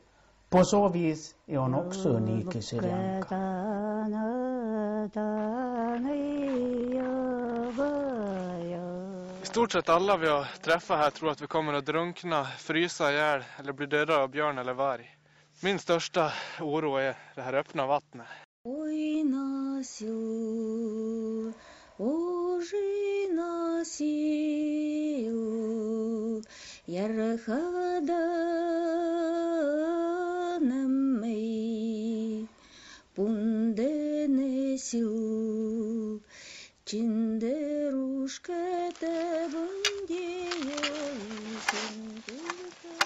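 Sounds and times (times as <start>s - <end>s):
woman singing slow melody: 1.8s - 9.6s, 18.7s - 43.0s.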